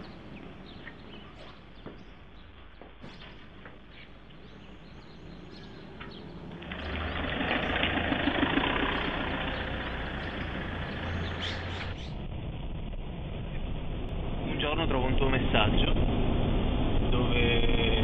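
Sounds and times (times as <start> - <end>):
engine running with rushing noise: 3.6 - 18.0.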